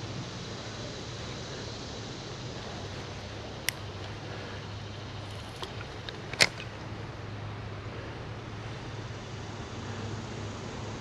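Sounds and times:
steady low background noise: 0.0 - 11.0
reel bail clicking shut: 5.4 - 6.7.

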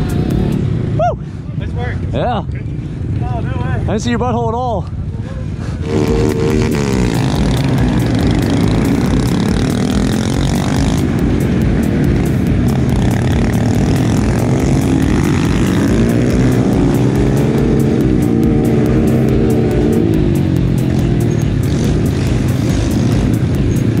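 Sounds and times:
minibike engines revving: 5.4 - 24.0.

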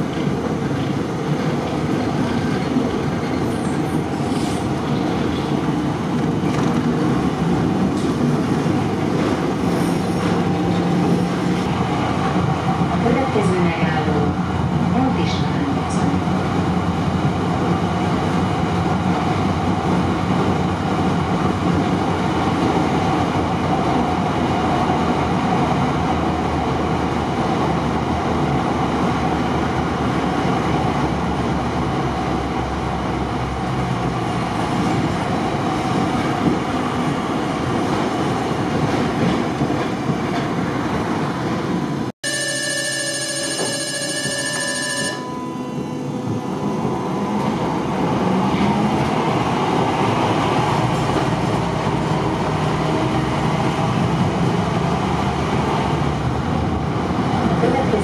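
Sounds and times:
tram wheels rumbling: 0.0 - 58.0
high-pitched ringing signal: 42.2 - 47.6.

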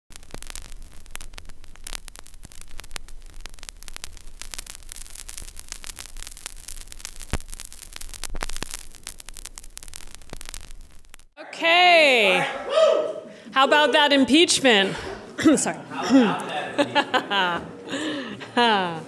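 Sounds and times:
vinyl crackle and pops: 0.0 - 11.4.

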